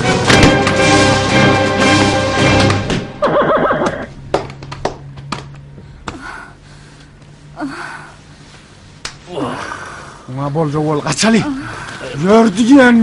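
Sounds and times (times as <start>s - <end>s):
film music: 0.0s - 4.7s
horse whinnying: 3.2s - 4.1s.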